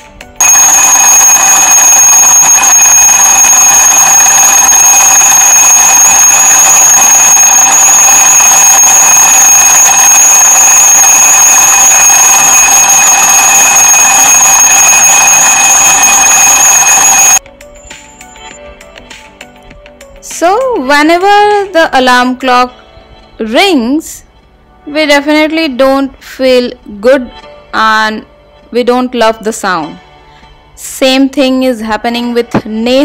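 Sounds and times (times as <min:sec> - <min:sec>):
alarm clocks ringing: 0:00.4 - 0:17.4.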